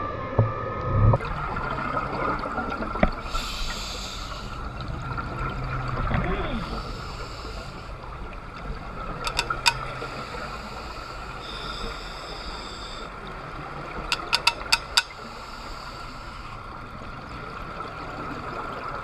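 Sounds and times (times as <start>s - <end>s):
underwater hiss: 3.1s - 4.9s, 6.5s - 8.3s, 9.2s - 13.3s, 14.1s - 17.0s
sharp clicks: 9.3s - 9.8s, 14.1s - 15.2s.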